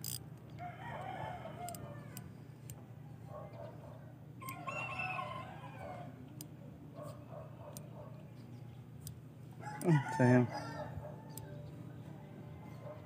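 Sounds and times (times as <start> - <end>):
faint rooster crowing: 0.6 - 2.4, 4.4 - 6.2, 9.6 - 13.0.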